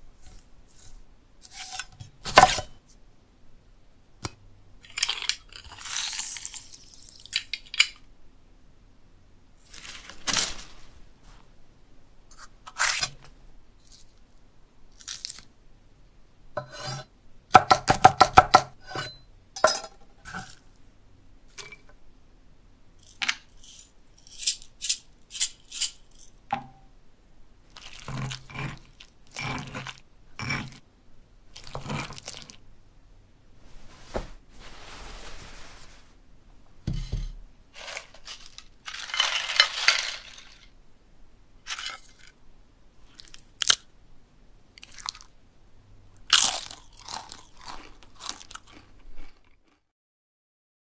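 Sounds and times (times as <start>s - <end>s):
knife chopping on wooden board: 17.6s - 19.0s
stone pestle crunching and scraping: 27.7s - 30.8s, 31.6s - 32.6s.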